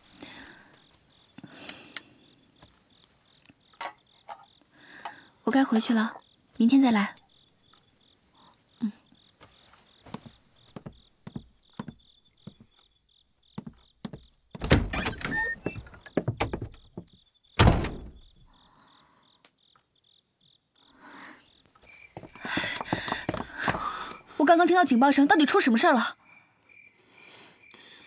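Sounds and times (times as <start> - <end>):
faint chirping: 0.1 - 24.4
rustling and clatter: 22.2 - 23.9.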